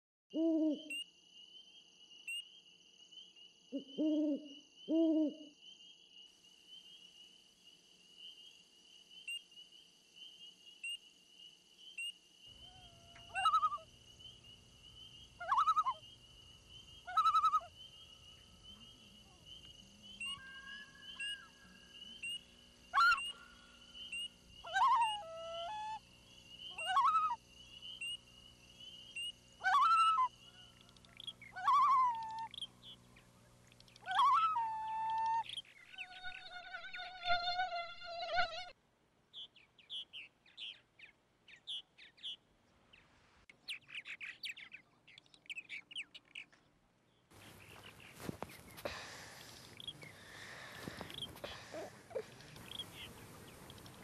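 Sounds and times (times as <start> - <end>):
owl hooting: 0.4 - 1.0, 3.7 - 5.5, 12.6 - 14.4, 15.3 - 16.2, 16.8 - 26.0, 26.6 - 28.2, 29.1 - 33.0, 33.9 - 37.7, 47.5 - 54.0
high-pitched insect trill: 5.5 - 33.0, 33.7 - 38.8
low background hum: 12.4 - 37.8, 43.9 - 54.0
short bird calls: 12.6 - 13.9, 18.7 - 26.0, 26.6 - 28.2, 47.4 - 54.0.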